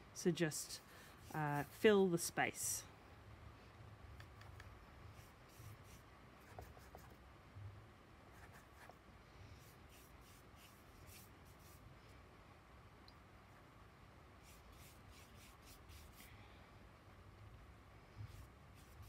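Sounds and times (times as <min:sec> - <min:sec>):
brush swishing on paper: 0:00.7 - 0:02.0, 0:05.1 - 0:07.1, 0:09.6 - 0:11.8, 0:14.4 - 0:16.3, 0:18.3 - 0:19.0.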